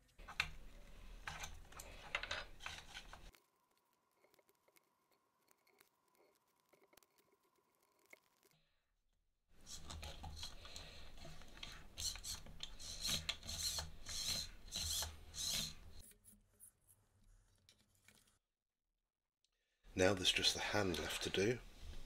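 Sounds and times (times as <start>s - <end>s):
plastic parts rubbing and scraping: 0.0s - 8.6s, 9.6s - 18.4s.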